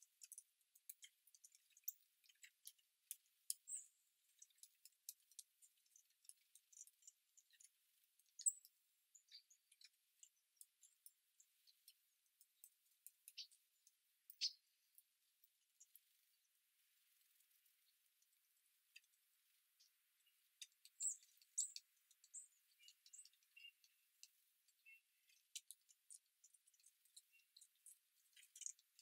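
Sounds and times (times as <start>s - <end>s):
beaks pecking at seed: 0.0s - 16.6s, 19.8s - 29.0s
high bird chirps: 14.4s - 14.7s, 20.9s - 23.9s.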